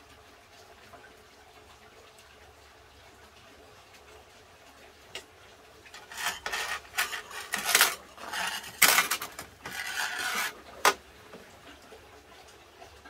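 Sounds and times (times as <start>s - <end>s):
pot being scraped: 5.9s - 11.0s.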